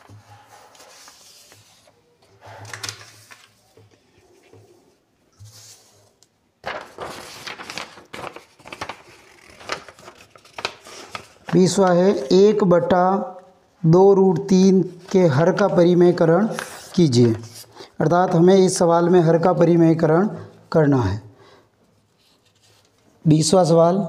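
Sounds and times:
paper sheets rustling and crackling: 0.0 - 12.3, 14.8 - 18.8, 22.0 - 23.0.

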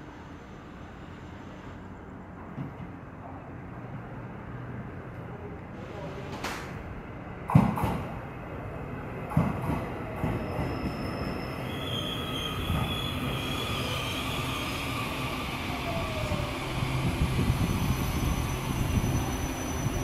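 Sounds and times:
train wheels rumbling on rails: 5.8 - 20.0
high-pitched wheel squeals: 10.4 - 16.6, 17.6 - 20.0.

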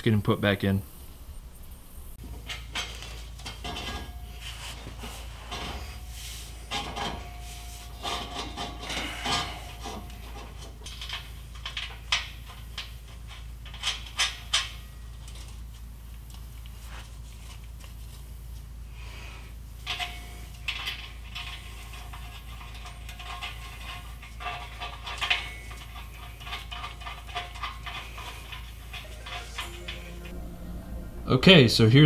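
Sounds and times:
metal pipe clinking and scraping: 2.2 - 15.8, 19.8 - 31.9.

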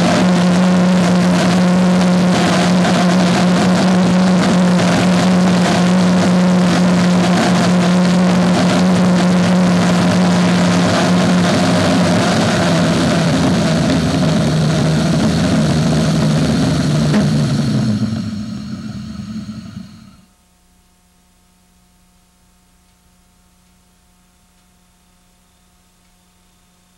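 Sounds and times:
jet engine running: 0.0 - 20.3.

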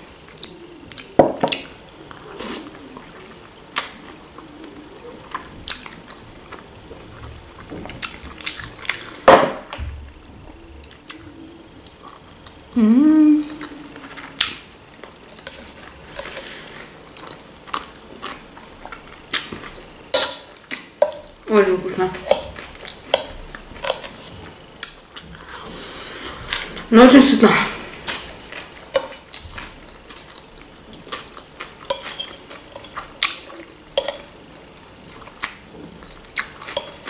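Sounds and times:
voice humming rising in pitch: 12.7 - 13.8
chewing and wet mouth smacks: 28.1 - 37.0.

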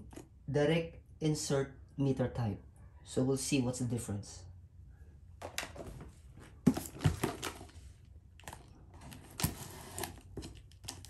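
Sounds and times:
cardboard box thumping: 6.6 - 7.7
knife cutting packing tape: 9.1 - 11.0.

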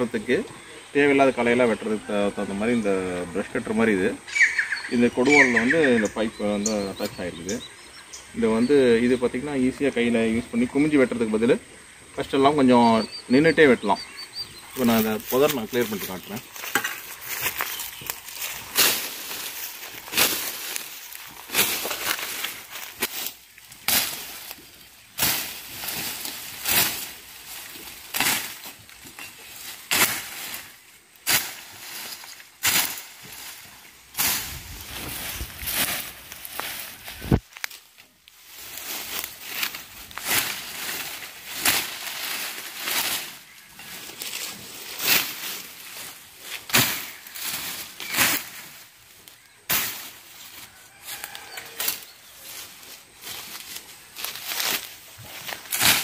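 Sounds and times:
rustle of cut stems and leaves: 14.7 - 56.0
blade swishing through stems: 16.0 - 24.6, 25.2 - 28.8, 29.6 - 37.8
billhook chopping brush: 25.2 - 28.7, 29.8 - 33.6, 46.6 - 48.6, 49.7 - 50.2, 55.5 - 56.0.

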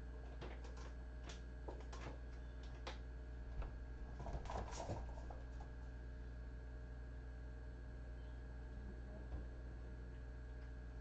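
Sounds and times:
low electrical hum: 0.0 - 11.0.

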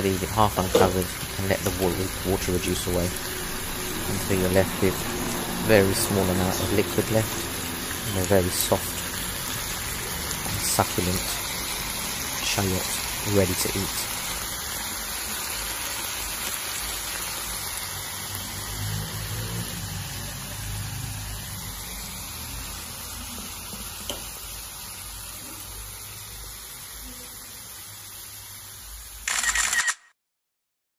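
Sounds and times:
vegetables sizzling in a pan: 0.0 - 29.2.

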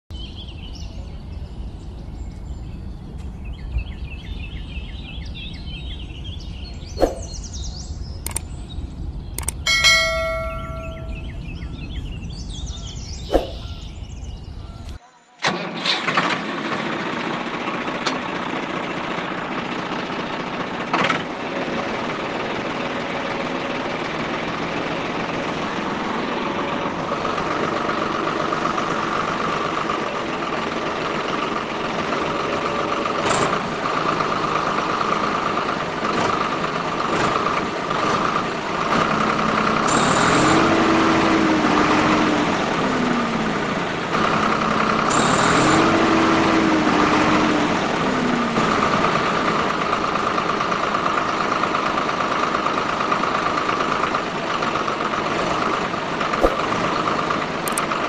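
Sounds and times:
low hum shifting in pitch: 9.3 - 12.1.

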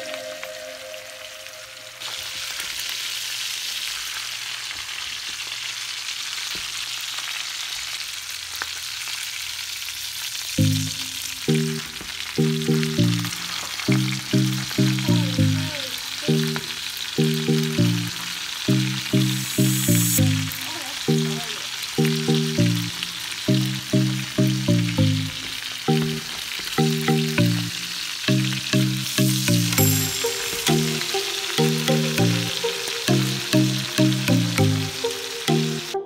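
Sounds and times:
oil sizzling in pan: 0.0 - 36.0
rhythmic music: 10.6 - 36.0.

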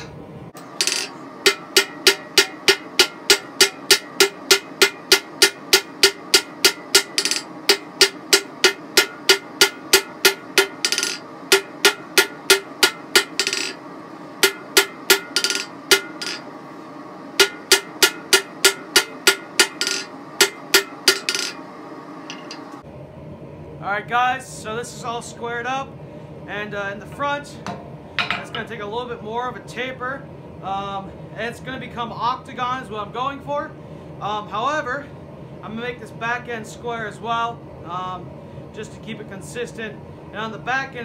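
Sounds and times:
anvil ringing: 0.7 - 13.8, 14.4 - 16.5, 17.4 - 21.6
hammer striking steel on anvil: 0.7 - 13.8, 14.4 - 16.5, 17.4 - 21.6, 22.2 - 22.7, 27.7 - 28.6.

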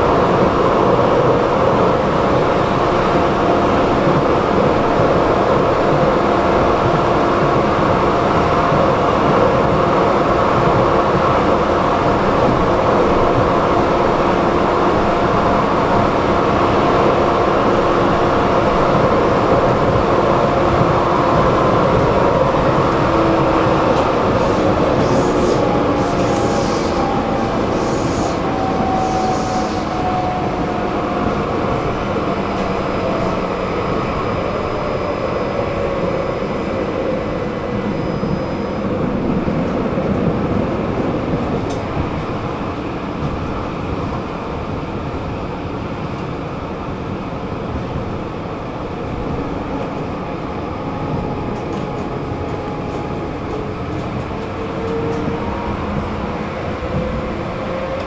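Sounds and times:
tram motor whine: 0.0 - 45.3
tram rumbling on rails: 0.0 - 58.0.

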